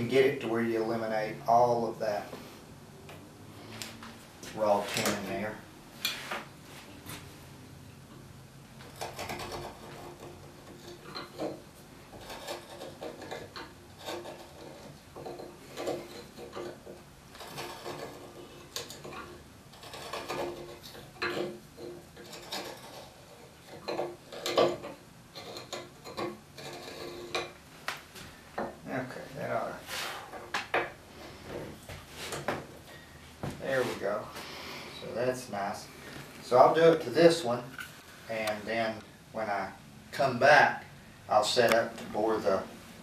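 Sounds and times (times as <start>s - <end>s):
knife paring wood: 8.8s - 27.6s.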